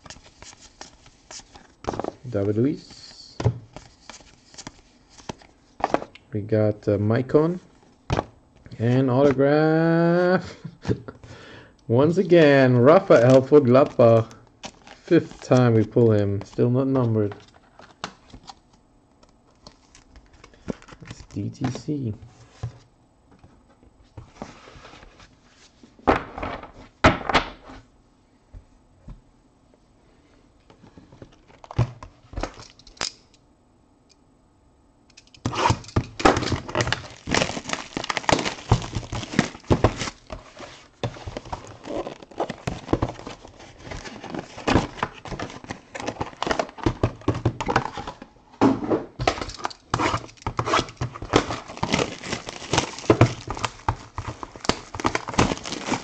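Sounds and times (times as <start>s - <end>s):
cardboard and wrappers rustling: 12.8s - 18.6s, 35.5s - 48.3s, 49.2s - 56.0s.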